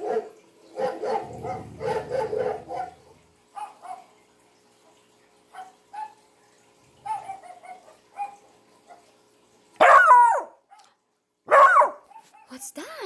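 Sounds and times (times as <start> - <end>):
puppy bark sliding into howl: 1.0 - 3.2.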